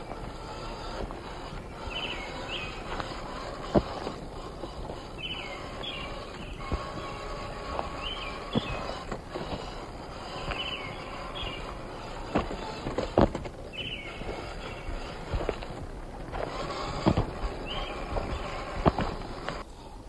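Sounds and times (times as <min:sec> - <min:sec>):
rc car knocking on rock: 0:00.0 - 0:19.6
rc car motor whine: 0:00.0 - 0:20.0
steady outdoor noise: 0:00.0 - 0:20.0.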